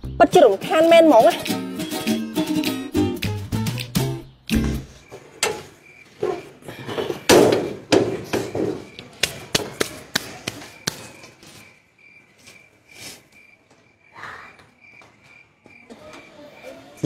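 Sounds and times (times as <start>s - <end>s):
crickets chirping: 3.8s - 17.0s
stall door knocking and banging: 7.2s - 8.9s.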